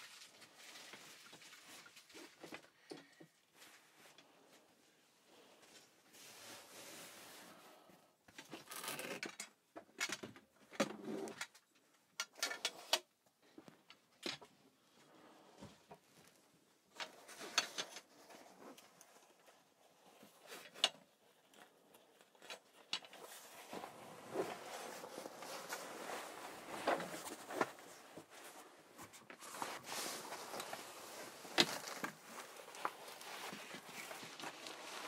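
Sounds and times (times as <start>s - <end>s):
fabric rustling: 18.0s - 35.0s.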